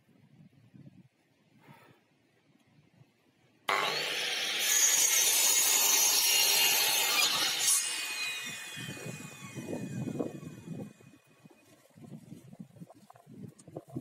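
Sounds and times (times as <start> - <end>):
mitre saw cutting wood: 3.7 - 11.1
saw blade winding down whine: 3.7 - 11.2.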